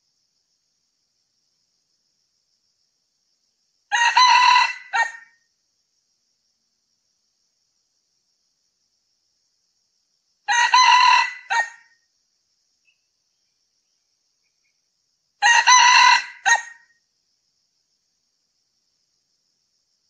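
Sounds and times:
rooster crowing: 3.9 - 5.4, 10.5 - 12.0, 15.4 - 16.9.

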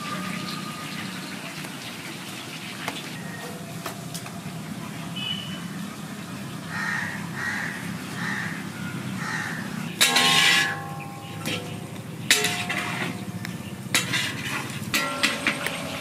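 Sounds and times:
chicken frying: 0.0 - 6.5
crow cawing: 6.7 - 9.8
metal ladle scraping iron pan: 10.0 - 16.0.

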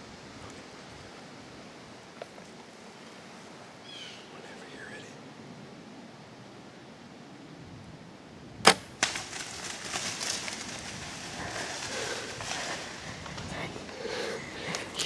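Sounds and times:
arrow striking: 8.6 - 10.0
bow firing crack: 8.6 - 11.3
animal crashing through brush: 8.6 - 13.5.

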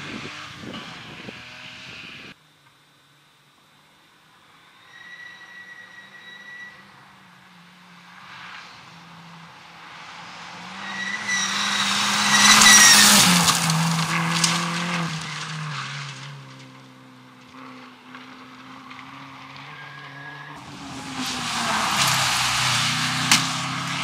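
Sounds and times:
rally car passing at speed: 6.8 - 24.0
tyres hissing on gravel: 20.6 - 24.0.

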